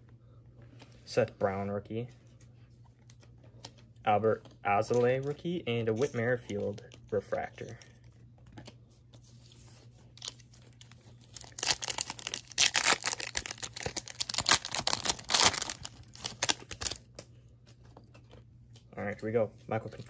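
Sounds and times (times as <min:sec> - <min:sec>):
foil wrapper tearing and crinkling: 0:10.2 - 0:17.1.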